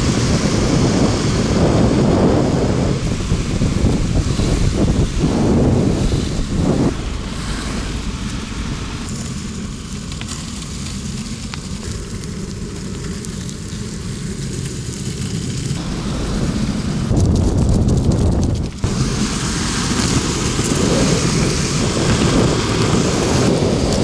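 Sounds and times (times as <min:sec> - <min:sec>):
wind rushing on microphone: 0:00.0 - 0:10.0, 0:15.6 - 0:24.0
skateboard wheels rolling on asphalt: 0:00.0 - 0:24.0.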